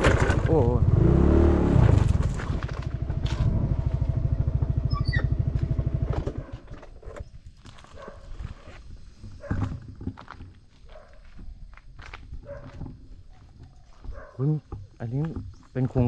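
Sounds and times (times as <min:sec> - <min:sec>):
small motorcycle engine idling: 0:00.0 - 0:01.0, 0:02.2 - 0:06.9
footsteps: 0:07.5 - 0:16.0.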